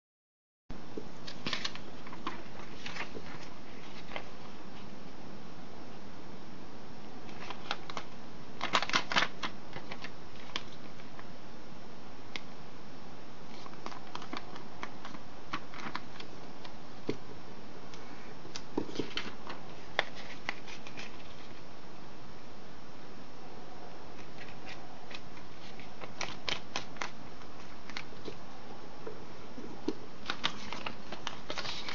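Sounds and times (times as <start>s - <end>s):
paper being folded and creased: 1.2s - 4.9s, 7.2s - 11.2s, 13.5s - 16.7s, 18.8s - 21.6s, 24.2s - 28.4s, 30.2s - 31.9s.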